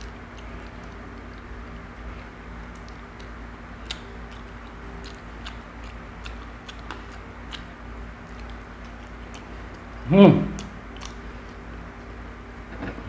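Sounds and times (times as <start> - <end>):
person chewing: 0.0 - 1.5, 2.1 - 11.6
steady low hum: 0.0 - 13.0
mouth clicks and smacks: 2.7 - 9.8, 10.5 - 11.2.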